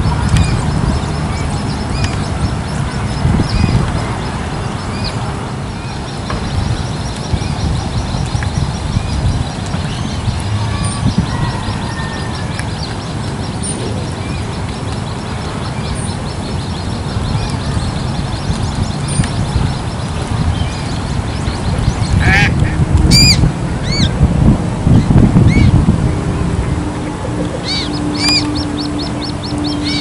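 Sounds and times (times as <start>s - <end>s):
steady low rumble: 0.0s - 30.0s
chicks peeping: 26.8s - 30.0s.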